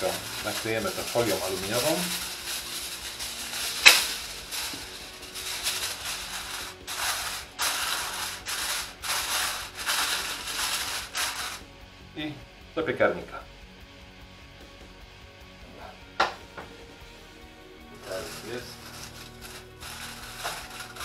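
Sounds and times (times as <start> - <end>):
aluminium foil crinkling: 0.0 - 11.6, 18.0 - 21.0.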